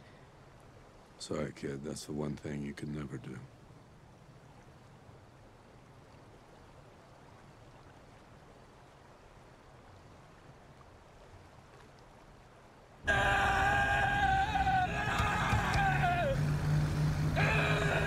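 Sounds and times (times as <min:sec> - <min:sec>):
stream flowing: 0:00.0 - 0:18.0
loud car engine: 0:13.1 - 0:18.0
man screaming: 0:13.1 - 0:18.0.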